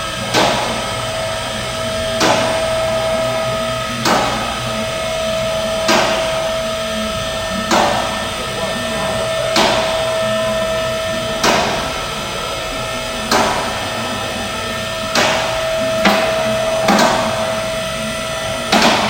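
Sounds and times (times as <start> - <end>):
steady hum: 0.0 - 19.0
hammer striking metal: 0.3 - 1.0, 1.8 - 12.3, 13.2 - 14.2, 15.0 - 17.6, 18.7 - 19.0.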